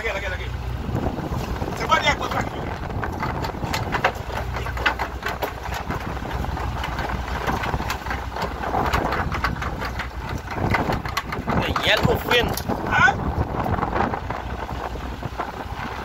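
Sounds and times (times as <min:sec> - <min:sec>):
boat engine idling: 0:00.0 - 0:16.0
sharp clicks and knocks: 0:02.3 - 0:12.9.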